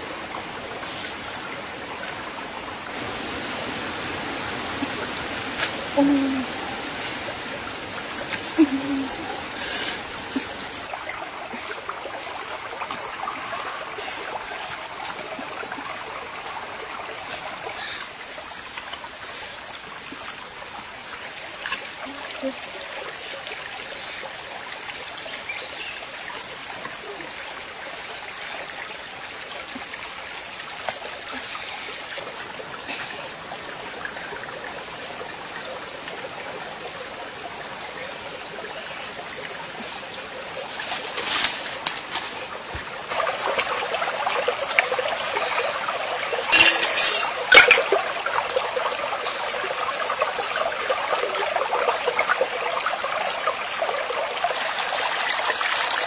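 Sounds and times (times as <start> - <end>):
running water rushing: 0.0 - 56.0
thin high whine: 3.0 - 10.9.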